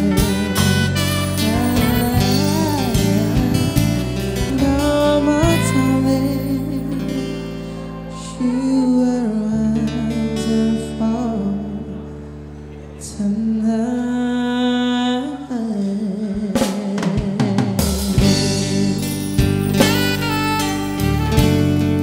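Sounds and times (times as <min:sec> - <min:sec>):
saxophone melody: 0:00.0 - 0:09.7, 0:19.4 - 0:22.0
person singing: 0:00.0 - 0:21.6
live band playing a ballad: 0:00.0 - 0:22.0.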